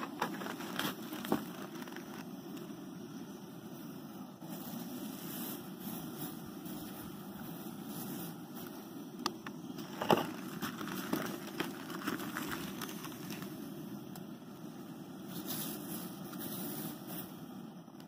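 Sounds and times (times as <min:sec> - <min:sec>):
dry rice pouring: 0:00.0 - 0:02.3, 0:04.4 - 0:08.7, 0:09.8 - 0:13.7
broth boiling and bubbling: 0:00.0 - 0:18.0.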